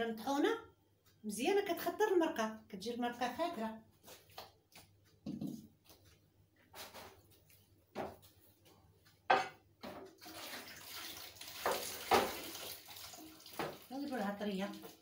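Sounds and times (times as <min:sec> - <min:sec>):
dishes knocking: 0:09.3 - 0:10.1
tap running water into bowl: 0:09.8 - 0:15.0.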